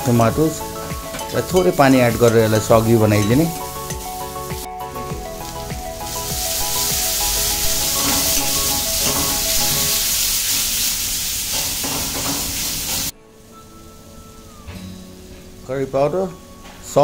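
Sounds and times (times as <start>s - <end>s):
background music: 0.0s - 10.9s, 11.8s - 17.0s
masala sizzling in pan: 0.0s - 13.1s
metal ladle scraping pan: 0.8s - 4.7s, 5.5s - 10.6s.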